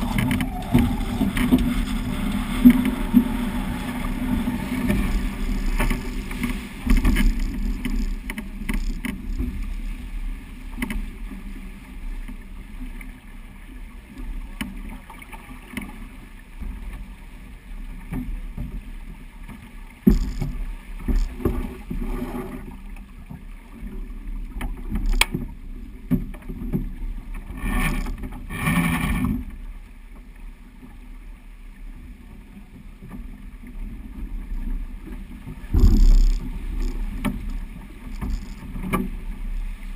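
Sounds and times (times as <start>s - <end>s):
rushing wind: 0.0s - 8.2s
rushing water: 0.0s - 39.9s
sharp knocks: 35.7s - 37.0s.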